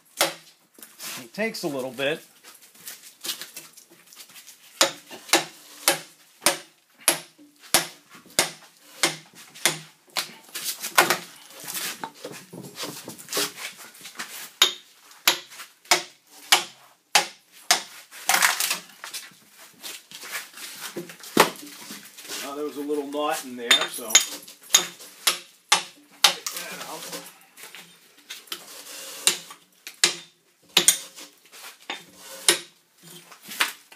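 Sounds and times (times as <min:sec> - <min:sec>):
axe chopping log: 0:00.2 - 0:00.5, 0:04.8 - 0:10.3, 0:11.0 - 0:11.3, 0:14.6 - 0:18.8, 0:24.8 - 0:26.6, 0:29.2 - 0:31.0, 0:32.4 - 0:32.7.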